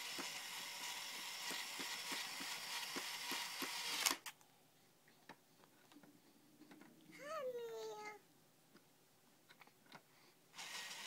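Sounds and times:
toy drill motor whirring: 0:00.0 - 0:04.3, 0:10.5 - 0:11.0.

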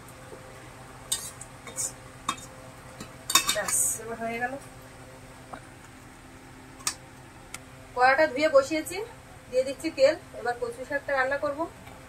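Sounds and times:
metal utensils clinking: 0:03.3 - 0:03.9.

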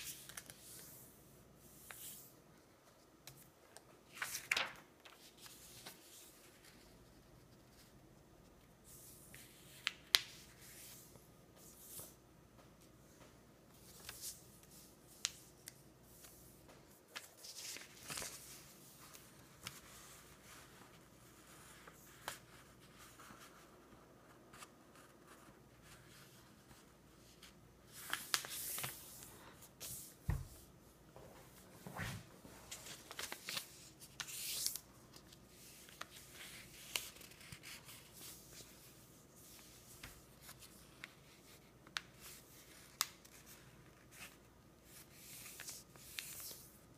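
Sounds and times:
paper crinkles and taps: 0:03.2 - 0:05.2
paper rustling and sliding: 0:04.1 - 0:06.8, 0:27.9 - 0:30.6, 0:31.5 - 0:44.4.

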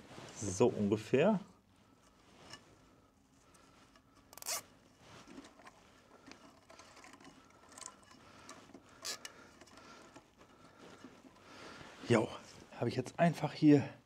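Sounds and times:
handling clicks and rustles: 0:03.4 - 0:11.9
cable tie ratcheting zip: 0:04.3 - 0:04.7, 0:09.0 - 0:09.3.

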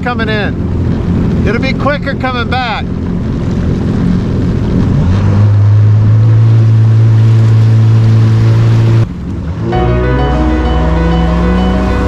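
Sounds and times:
jet ski engine: 0:00.0 - 0:12.0
water and wind rushing: 0:00.0 - 0:12.0.

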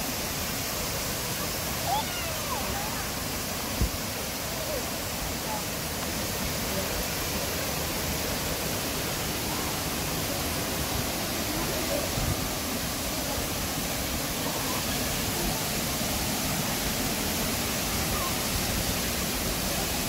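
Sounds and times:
waterfall rushing: 0:00.0 - 0:20.0.

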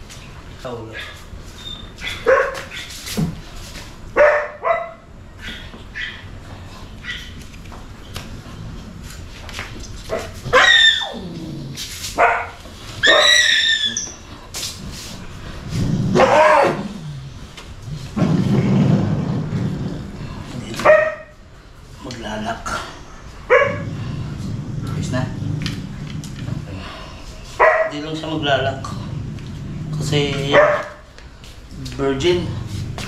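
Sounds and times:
dogs yelping and barking: 0:01.6 - 0:03.0, 0:04.2 - 0:06.4, 0:07.0 - 0:07.4, 0:10.1 - 0:11.3, 0:12.2 - 0:14.4, 0:16.1 - 0:17.1, 0:22.7 - 0:24.2, 0:30.0 - 0:31.1.

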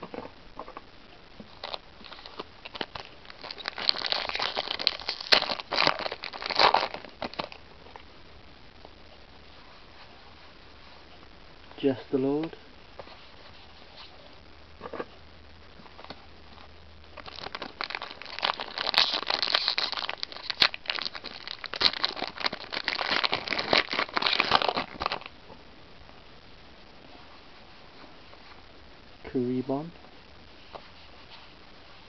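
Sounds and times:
foil wrapper crinkling and tearing: 0:01.5 - 0:07.6, 0:16.0 - 0:25.4.

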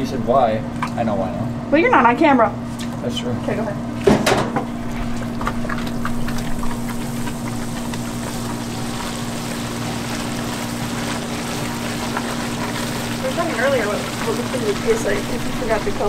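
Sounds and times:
steady low hum: 0:00.0 - 0:16.0
sugar syrup bubbling and hissing: 0:04.7 - 0:16.0.

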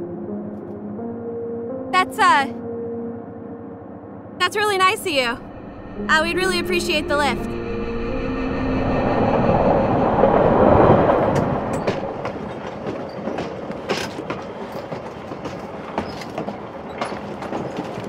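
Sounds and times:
train rumbling on rails: 0:05.2 - 0:18.0
wheels clicking over rail joints: 0:11.3 - 0:18.0.

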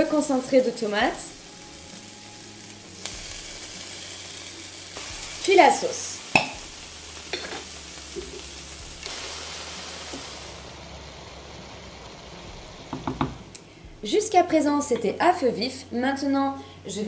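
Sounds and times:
vegetables sizzling in pan: 0:00.0 - 0:13.5.

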